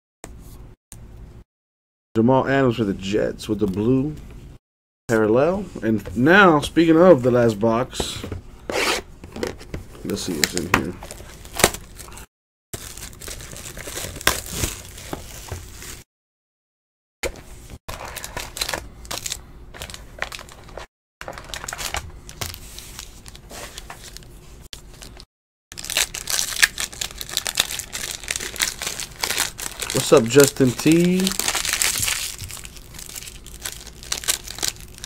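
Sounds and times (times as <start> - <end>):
foil pack tearing open: 12.8 - 15.0, 17.9 - 24.2, 25.0 - 35.0
foil wrappers crinkling: 12.8 - 16.0, 17.9 - 35.0.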